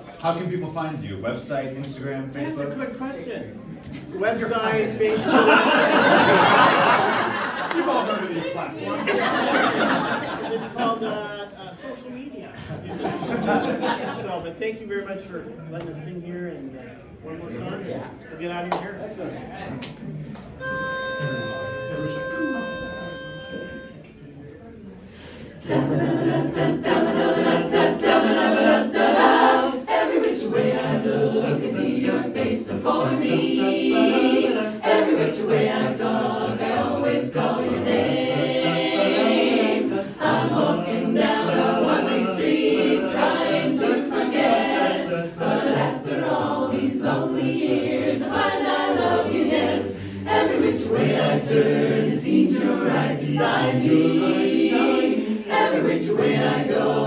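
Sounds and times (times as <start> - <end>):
barbershop chorus singing a cappella: 5.1 - 7.6, 20.6 - 23.9, 25.2 - 57.0.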